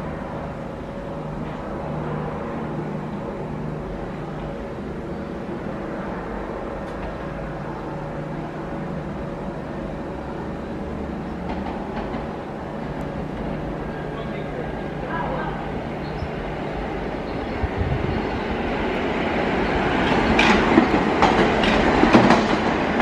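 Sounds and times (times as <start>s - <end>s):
train wheels on rail: 0.0s - 23.0s.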